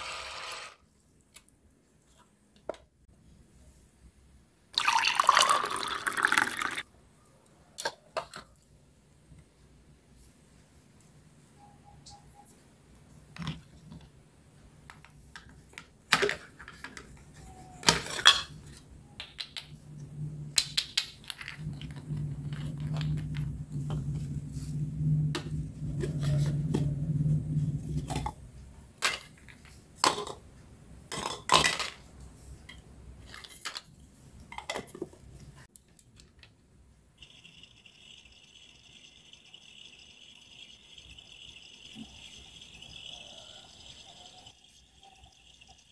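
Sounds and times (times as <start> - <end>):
steady low hum: 21.6 - 28.8.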